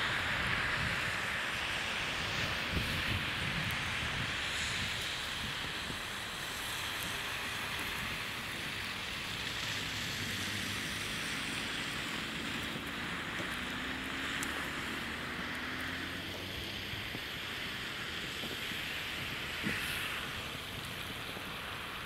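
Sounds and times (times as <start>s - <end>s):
car tyres hissing through slush: 0.0s - 22.0s
wind on microphone: 2.0s - 14.0s.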